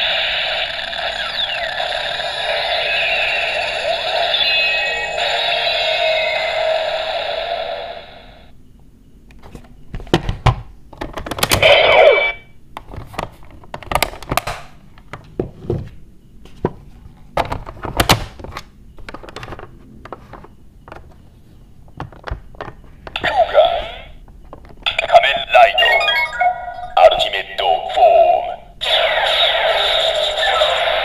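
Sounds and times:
short electronic tone: 0:01.0 - 0:07.1, 0:25.2 - 0:27.3.

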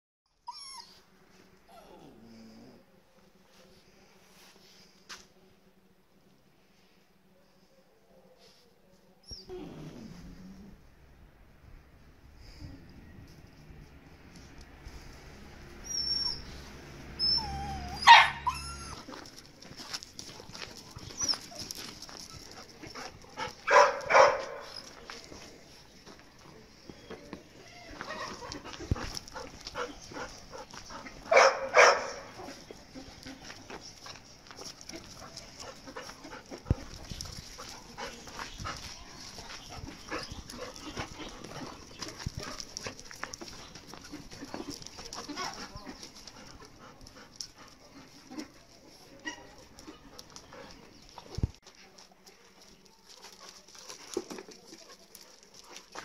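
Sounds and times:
dog whining: 0:00.4 - 0:01.0, 0:17.2 - 0:19.2
dog yelping: 0:17.2 - 0:19.1
paws scuffing on gravel: 0:17.6 - 0:56.0.

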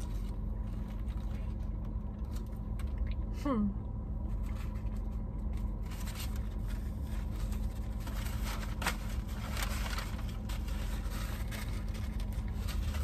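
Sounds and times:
low car cabin hum: 0:00.0 - 0:13.0
foil wrapper crinkling: 0:04.4 - 0:13.0.

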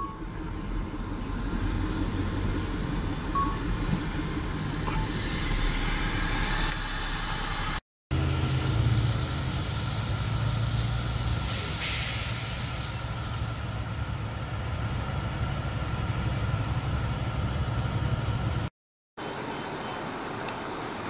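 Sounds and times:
short hiss: 0:11.5 - 0:12.9.

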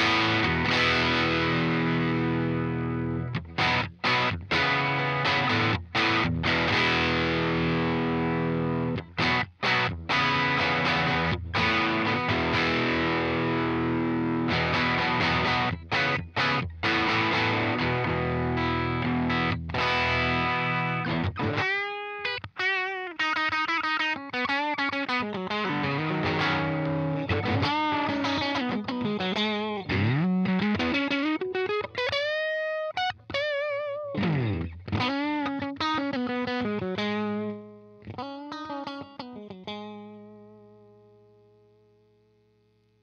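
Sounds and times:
distorted synth-like electric guitar: 0:23.4 - 0:41.2.

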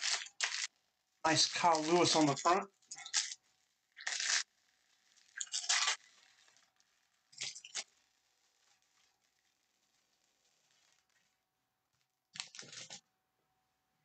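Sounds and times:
plastic wrapping crinkling and tearing: 0:00.0 - 0:11.2, 0:12.4 - 0:13.0.

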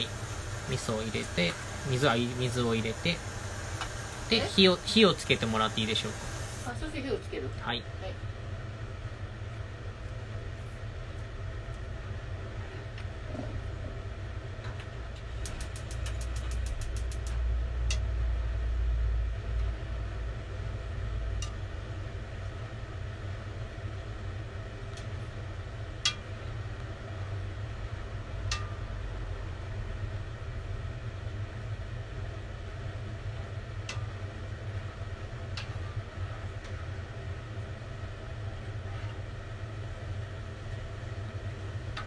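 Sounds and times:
gas igniter clicking: 0:00.0 - 0:06.6
gas burner rumble: 0:00.0 - 0:42.0.

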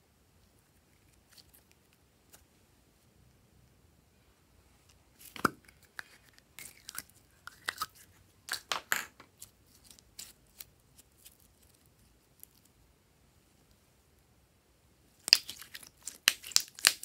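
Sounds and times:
slime crackling and popping: 0:15.2 - 0:17.0.

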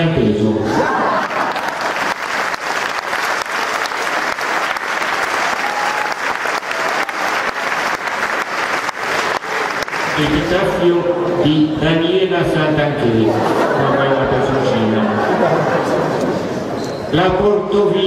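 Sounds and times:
audience applauding: 0:00.8 - 0:10.7.

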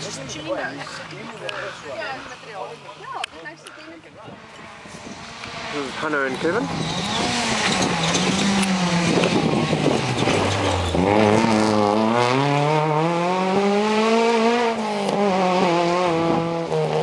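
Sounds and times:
rally car engine revving: 0:04.3 - 0:17.0.

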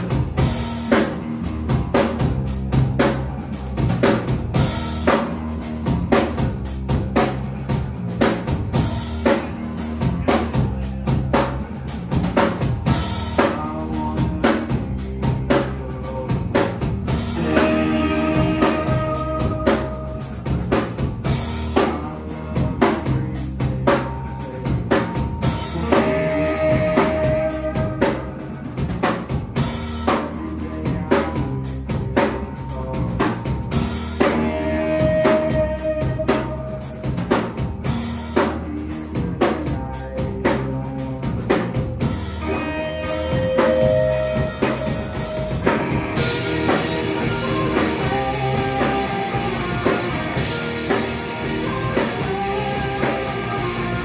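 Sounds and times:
drum kit beat: 0:00.0 - 0:54.0
live band playing instrumental: 0:00.0 - 0:54.0
held high notes: 0:17.2 - 0:20.7, 0:42.3 - 0:54.0.

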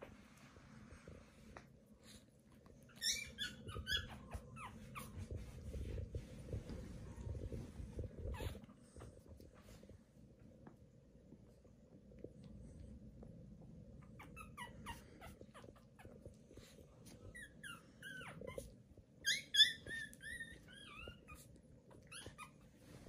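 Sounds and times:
puppies squeaking and whimpering: 0:02.8 - 0:05.6, 0:14.0 - 0:16.2, 0:17.1 - 0:23.0.

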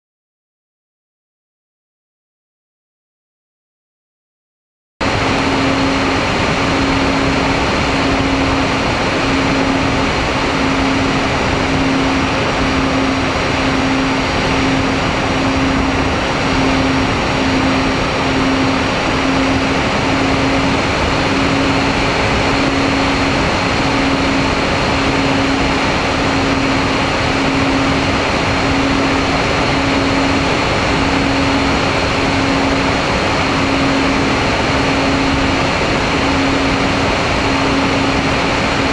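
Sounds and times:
faint high whine: 0:05.0 - 0:38.9
low motor drone: 0:05.0 - 0:38.9
wind and propeller noise: 0:05.0 - 0:38.9.

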